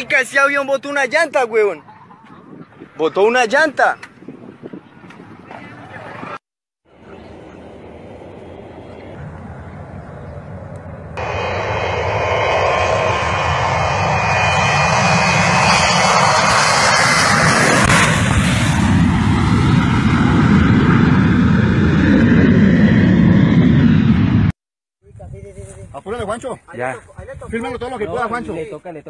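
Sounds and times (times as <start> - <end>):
jet plane passing overhead: 0.0 - 24.6.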